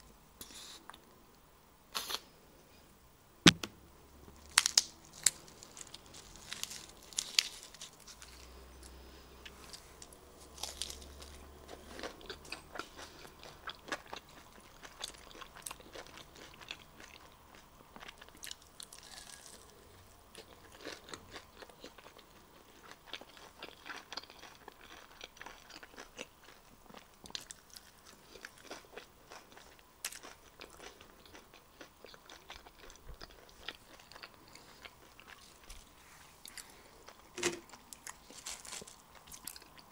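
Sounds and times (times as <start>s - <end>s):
lettuce leaf crackling: 4.4s - 11.4s, 37.4s - 39.7s
crunchy bites and chewing: 4.4s - 39.9s.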